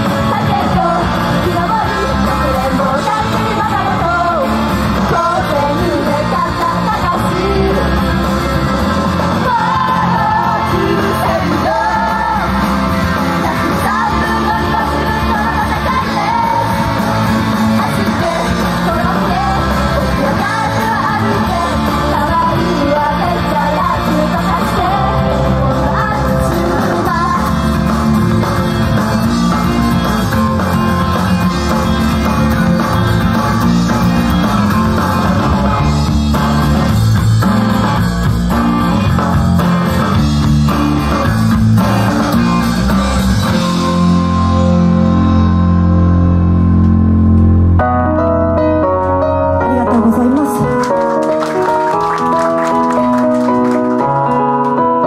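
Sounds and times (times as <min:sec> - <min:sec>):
live rock song: 0:00.0 - 0:55.0
people singing: 0:09.3 - 0:27.6.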